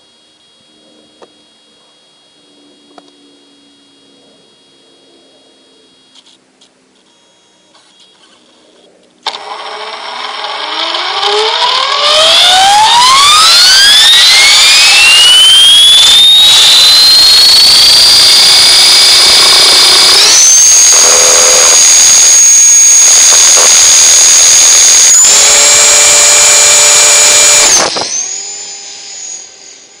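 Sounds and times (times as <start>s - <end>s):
rc helicopter motor whine: 0.0s - 6.4s, 7.0s - 30.0s.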